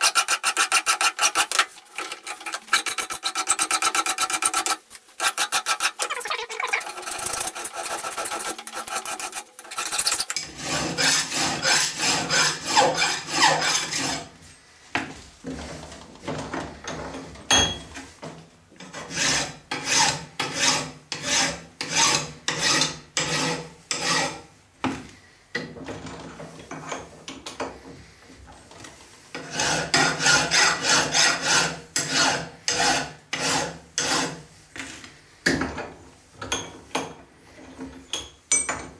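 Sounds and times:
hand file rasping on metal: 0:00.0 - 0:14.3, 0:18.8 - 0:24.5, 0:29.3 - 0:34.5.

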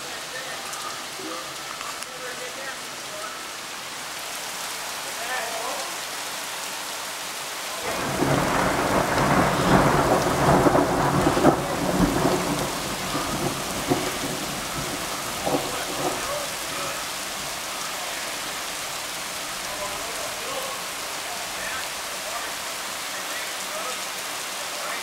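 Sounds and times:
steady rain falling: 0:00.0 - 0:25.0
thunder rumbling: 0:07.8 - 0:20.7
thunder cracks: 0:07.9 - 0:17.1.

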